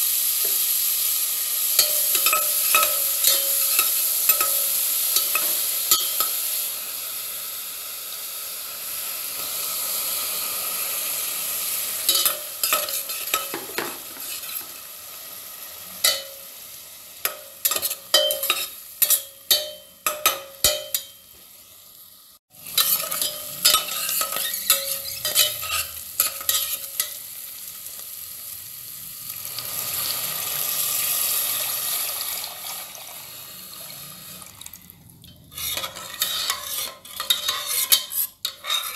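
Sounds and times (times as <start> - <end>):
vegetables sizzling in a pot: 0.0 - 38.9
ladle clinking and scraping pot: 1.8 - 6.4, 12.1 - 14.7, 17.3 - 21.2, 22.6 - 27.2, 35.3 - 38.9.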